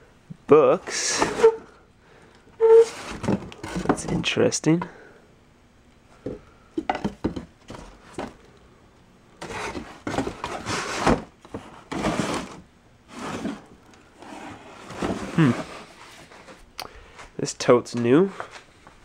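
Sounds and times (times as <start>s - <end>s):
books scraping and rustling in box: 0.9s - 1.7s, 2.6s - 4.3s, 9.4s - 16.6s.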